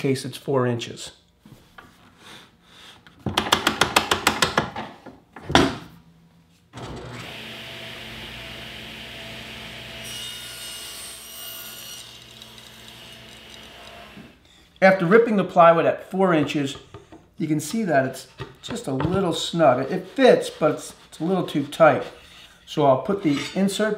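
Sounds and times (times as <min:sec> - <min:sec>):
table saw running: 0:06.8 - 0:14.5
saw blade ripping plywood: 0:11.5 - 0:14.3.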